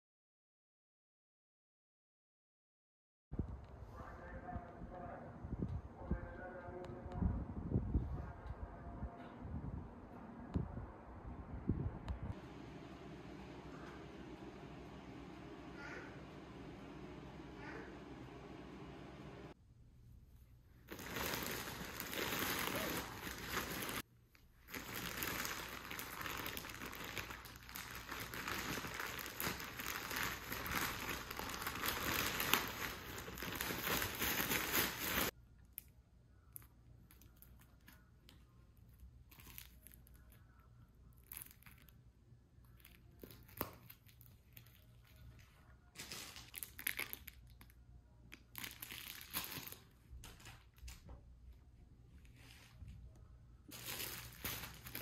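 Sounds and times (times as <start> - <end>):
plastic mailer bag crinkling and tearing: 20.8 - 24.0, 24.6 - 35.3, 39.2 - 40.4, 41.1 - 42.0, 42.7 - 50.9, 53.7 - 55.0.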